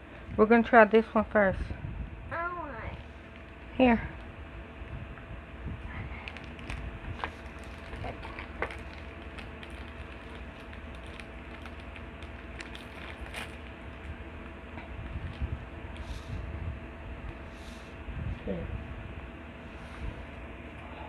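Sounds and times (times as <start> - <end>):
faint hum: 0.0 - 21.0
low rumble: 0.0 - 21.0
handling clicks and rustles: 6.2 - 16.1.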